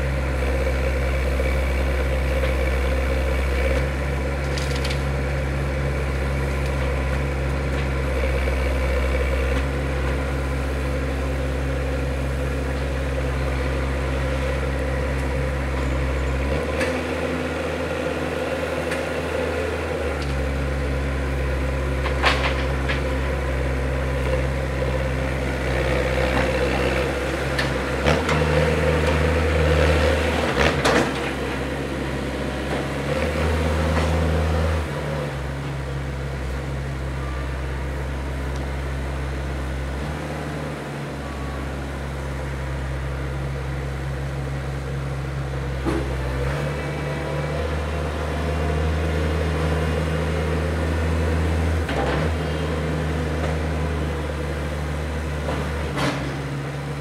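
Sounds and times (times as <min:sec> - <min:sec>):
loader diesel engine running: 0:00.0 - 0:57.0.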